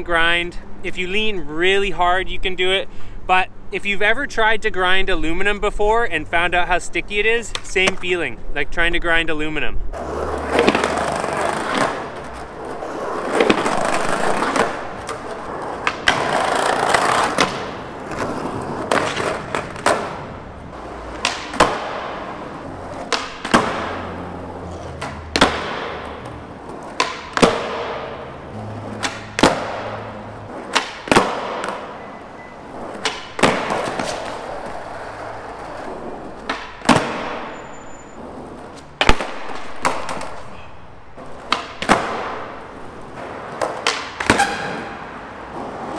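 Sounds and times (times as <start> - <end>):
skateboard wheels rolling on concrete: 0.0 - 45.9
skateboard tail cracking on ground: 10.0 - 20.2, 21.1 - 24.1, 25.0 - 28.2, 28.9 - 31.9, 32.9 - 37.5, 38.6 - 40.5.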